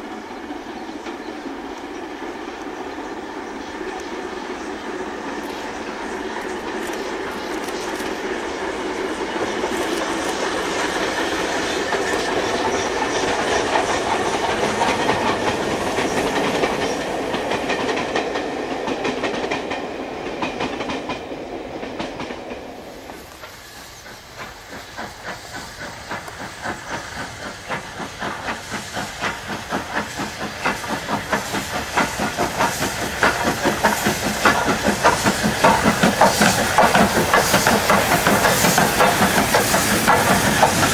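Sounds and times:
steam locomotive running: 0.0s - 40.9s
locomotive exhaust beat: 23.4s - 40.9s.

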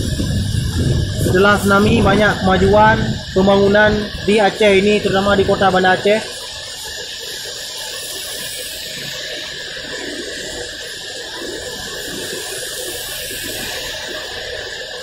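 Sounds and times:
car tyres swishing on wet road: 0.0s - 15.0s
heavy rain falling: 0.0s - 15.0s.

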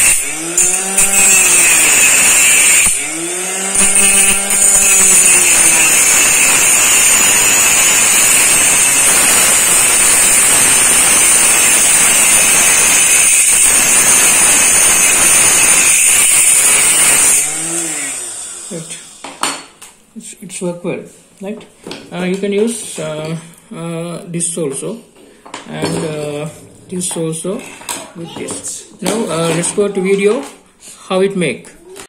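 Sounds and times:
angle grinder grinding steel: 0.0s - 19.7s.

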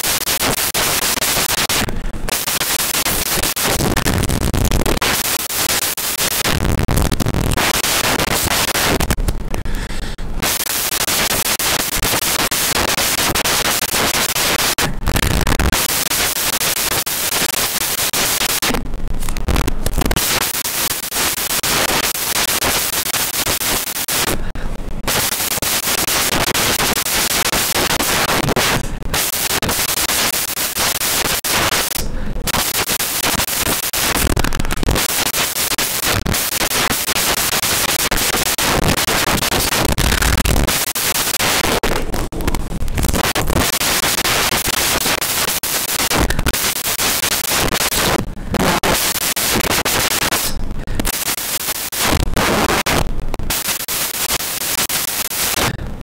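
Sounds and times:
static-like hiss: 0.0s - 56.0s.

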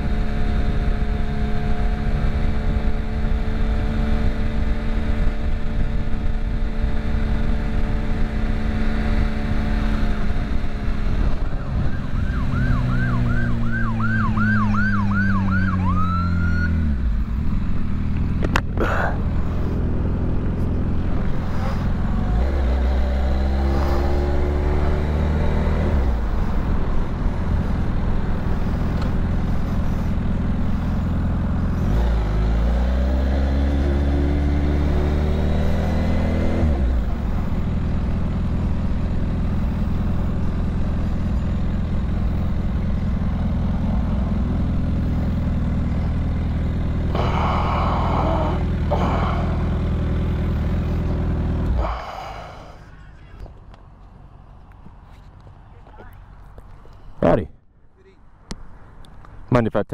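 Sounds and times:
motorcycle engine accelerating: 0.0s - 52.8s
police siren yelping: 11.9s - 16.8s.

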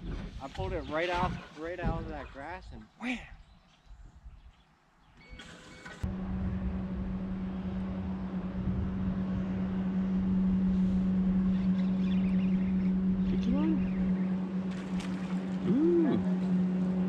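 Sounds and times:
boat motor humming: 5.8s - 17.0s.

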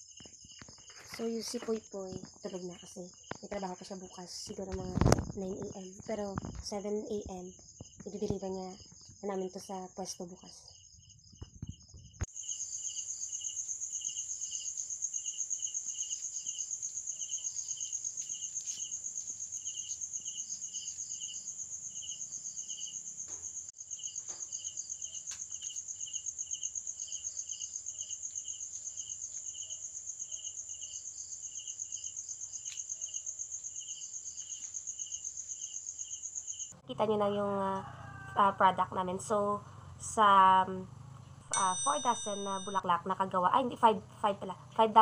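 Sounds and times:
insect chirping in pulses: 0.0s - 36.8s
crickets trilling: 0.0s - 45.0s.

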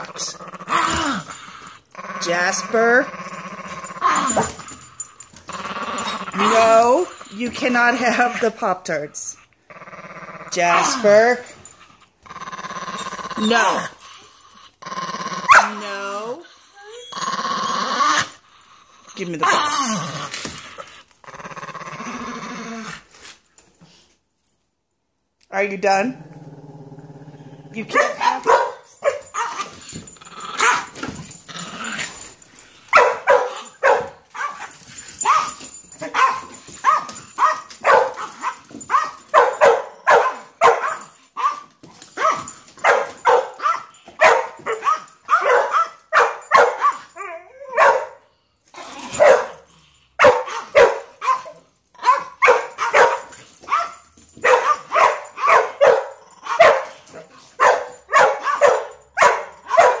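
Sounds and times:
dog barking: 15.5s - 15.8s, 27.9s - 29.6s, 32.9s - 41.6s, 42.2s - 47.1s, 47.7s - 48.2s, 49.2s - 49.6s, 50.2s - 57.0s, 57.6s - 60.0s.

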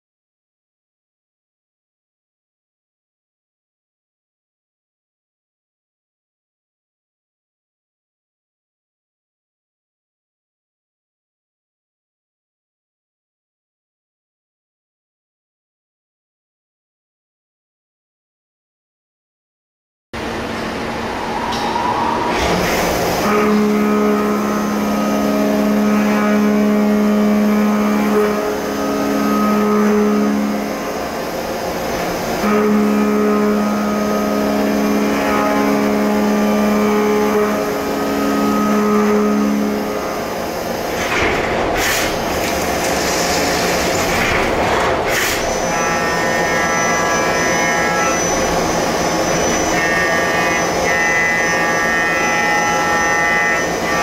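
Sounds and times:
milling machine cutting metal: 22.3s - 54.0s.

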